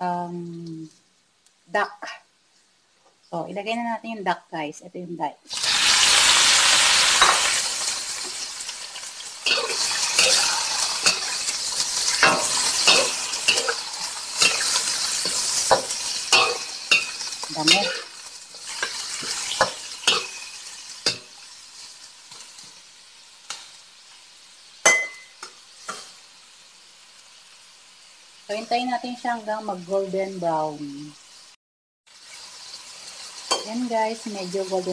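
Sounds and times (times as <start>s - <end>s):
utensil scraping a wok: 5.5s - 22.7s
meat sizzling in hot oil: 5.5s - 34.9s.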